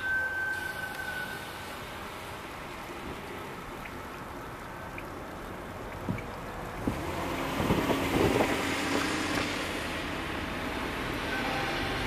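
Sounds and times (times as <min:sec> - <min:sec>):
wind noise: 0:06.0 - 0:09.6.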